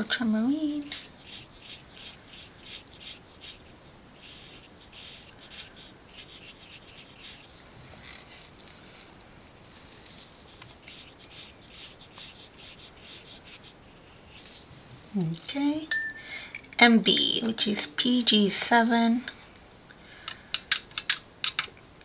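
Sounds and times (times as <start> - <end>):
paintbrush scrubbing on paper: 0.3 - 14.8.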